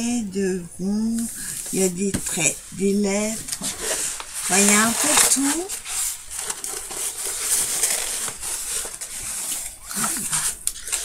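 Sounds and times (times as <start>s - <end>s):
canvas sheet crinkling and rustling: 3.2s - 11.0s.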